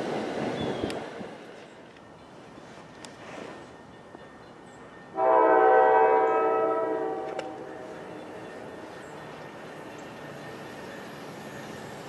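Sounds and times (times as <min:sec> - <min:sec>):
train air horn blast: 0:05.2 - 0:08.0.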